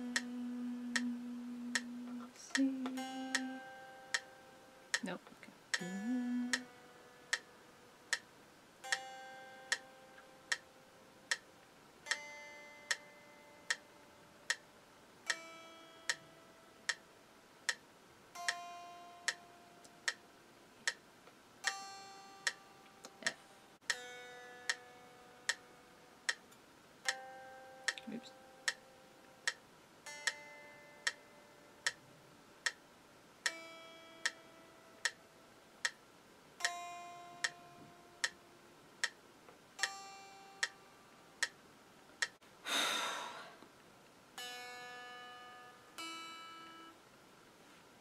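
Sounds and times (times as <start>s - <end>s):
metronome clicking: 0.0s - 7.5s, 8.9s - 10.7s, 11.3s - 13.9s, 15.3s - 17.0s, 18.4s - 20.2s, 20.8s - 32.0s, 33.4s - 35.2s, 35.8s - 36.0s, 36.6s - 38.4s, 39.0s - 40.8s, 42.2s - 42.4s, 44.4s - 47.0s
electric guitar single notes: 0.0s - 7.9s.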